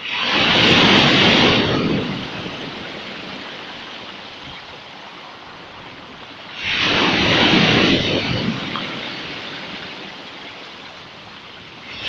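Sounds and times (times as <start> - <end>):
waves breaking on pebble beach: 0.0 - 12.0.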